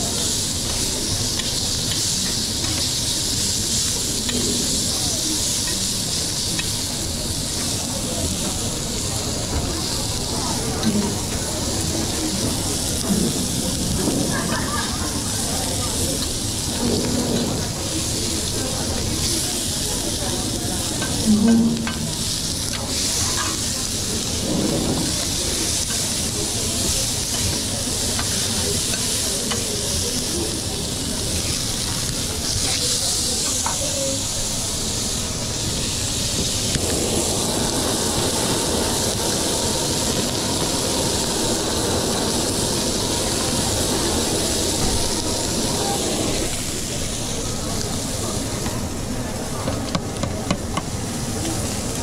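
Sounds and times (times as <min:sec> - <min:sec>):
food sizzling in a pan: 0:00.0 - 0:50.0
low rumbling noise: 0:16.4 - 0:27.3, 0:36.2 - 0:49.2.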